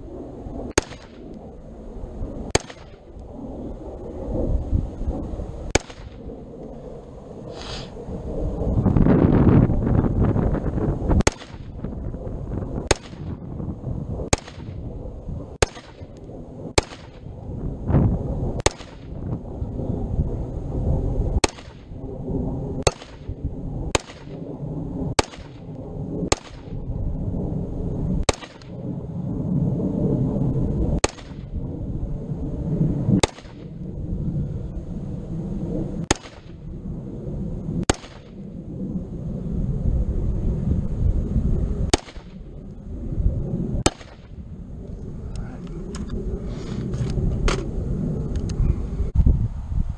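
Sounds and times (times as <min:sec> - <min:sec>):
wind rumbling on microphone: 0:00.0 - 0:49.9
rifle shots with echo: 0:00.7 - 0:01.3, 0:02.5 - 0:03.1, 0:05.7 - 0:06.3, 0:11.2 - 0:11.8, 0:12.8 - 0:13.4, 0:14.3 - 0:14.8, 0:15.6 - 0:17.3, 0:18.6 - 0:19.2, 0:21.4 - 0:22.0, 0:22.8 - 0:24.4, 0:25.1 - 0:25.7, 0:26.3 - 0:26.8, 0:28.2 - 0:28.8, 0:31.0 - 0:31.6, 0:33.2 - 0:33.8, 0:36.0 - 0:36.6, 0:37.8 - 0:38.4, 0:41.9 - 0:42.5, 0:43.8 - 0:44.4.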